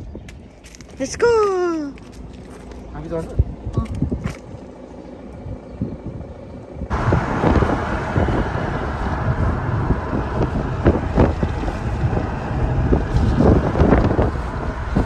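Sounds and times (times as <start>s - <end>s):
low vehicle rumble: 1.9s - 15.0s
wind buffeting microphone: 3.0s - 4.7s, 5.4s - 15.0s.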